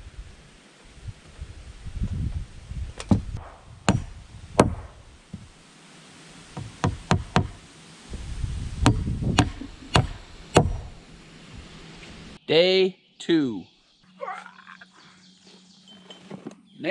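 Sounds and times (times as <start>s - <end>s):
hammer driving nails into wood: 3.9s - 4.9s, 6.6s - 7.6s, 8.9s - 10.9s.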